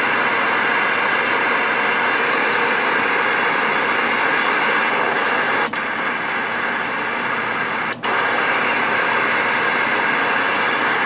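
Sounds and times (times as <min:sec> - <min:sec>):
radio static hiss: 0:00.0 - 0:11.0
radio signal click: 0:07.5 - 0:09.6.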